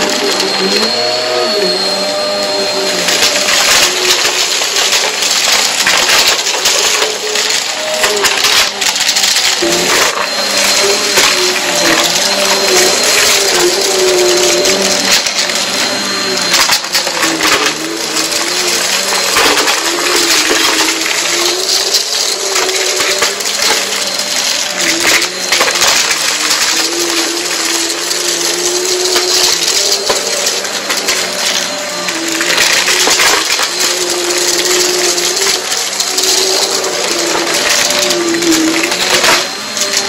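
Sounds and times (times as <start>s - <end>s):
vacuum cleaner motor whine: 0.0s - 40.0s.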